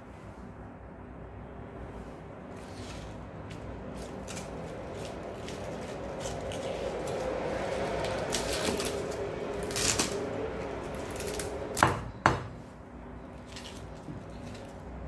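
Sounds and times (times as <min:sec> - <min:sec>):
cabbage leaves crinkling and tearing: 0:02.5 - 0:11.8, 0:13.3 - 0:15.0.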